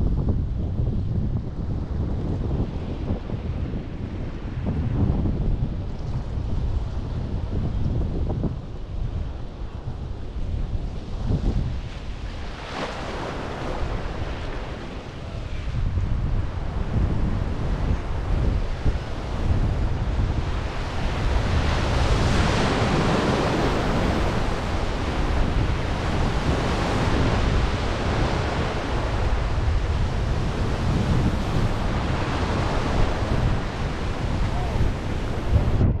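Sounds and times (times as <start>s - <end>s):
wind buffeting microphone: 0.0s - 36.0s
small waves washing in shallows: 10.2s - 35.8s.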